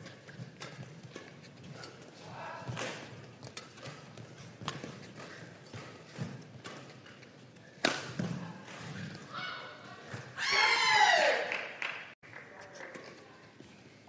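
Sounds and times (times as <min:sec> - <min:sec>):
racket striking shuttlecock: 0:02.7 - 0:08.5.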